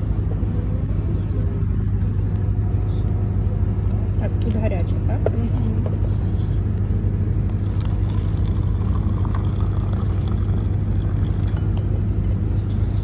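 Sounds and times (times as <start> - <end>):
low machine hum: 0.0 - 13.0
water running into paper cup: 7.5 - 11.7.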